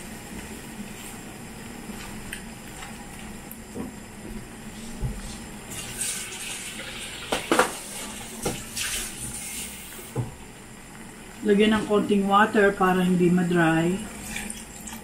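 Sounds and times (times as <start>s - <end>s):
tap water filling a cup: 6.1s - 7.8s.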